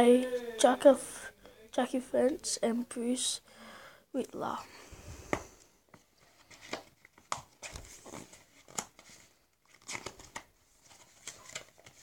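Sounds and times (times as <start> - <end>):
book pages rustling: 5.3 - 12.0.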